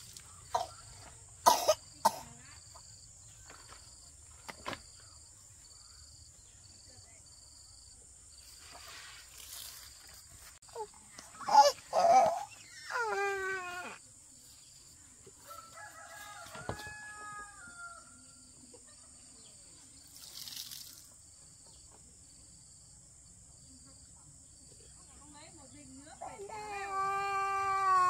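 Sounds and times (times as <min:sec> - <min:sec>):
rooster crowing: 0:15.4 - 0:18.4.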